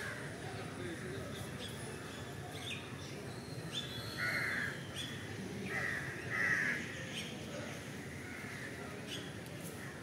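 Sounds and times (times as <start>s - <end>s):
crow cawing: 5.8s - 6.8s.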